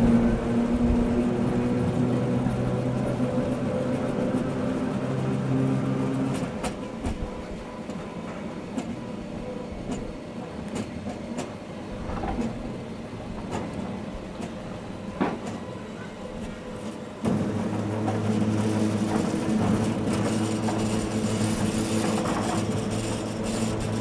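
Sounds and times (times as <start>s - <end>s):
train drive hum: 0.0s - 24.0s
train rumble: 0.0s - 24.0s
wheels clicking over rail joints: 9.8s - 24.0s.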